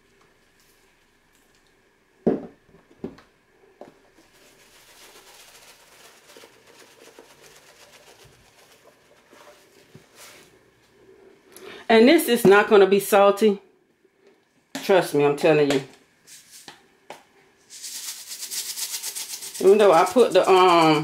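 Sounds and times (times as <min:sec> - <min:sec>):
seasoning shaker rattling: 0:04.2 - 0:09.7, 0:17.7 - 0:21.0.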